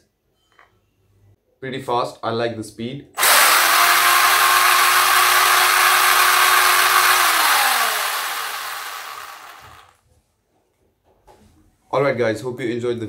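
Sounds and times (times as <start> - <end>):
electric motor whine: 3.2 - 9.9.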